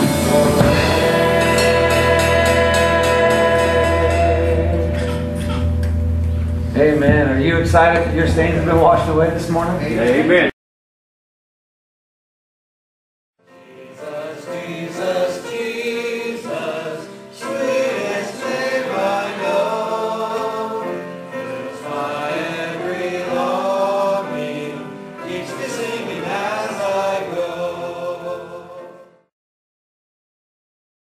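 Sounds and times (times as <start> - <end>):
voices singing together: 0.0 - 5.8, 13.5 - 29.3
guitars and drums: 0.0 - 10.3.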